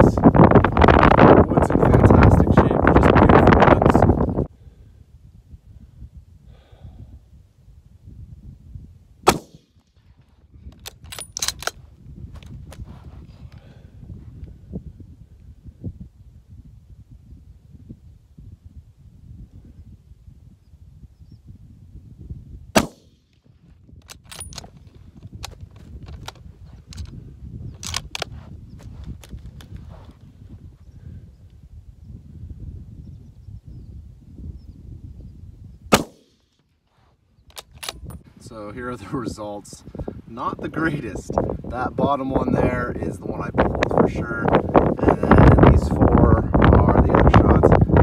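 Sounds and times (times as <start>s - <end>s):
wind rumbling on microphone: 0.0s - 48.0s
rifle shot: 9.2s - 9.8s, 22.8s - 23.2s, 35.9s - 36.5s
rifle bolt clicking: 10.8s - 11.8s.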